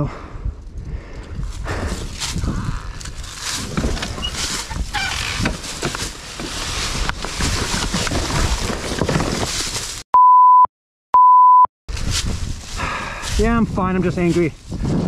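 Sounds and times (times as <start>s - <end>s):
censor bleep: 10.2s - 11.7s.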